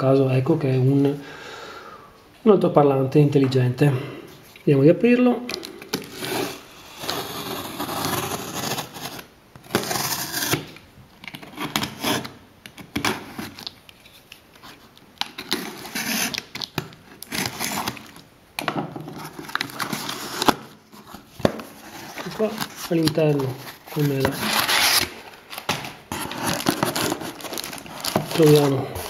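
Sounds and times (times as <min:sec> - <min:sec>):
box cutter slicing packing tape: 0:06.0 - 0:10.7, 0:24.3 - 0:28.7.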